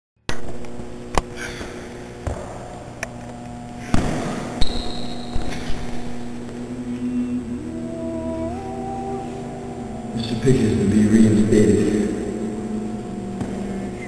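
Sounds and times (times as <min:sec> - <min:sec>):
steady low hum: 0:00.3 - 0:14.0
thin high tone: 0:04.6 - 0:14.0.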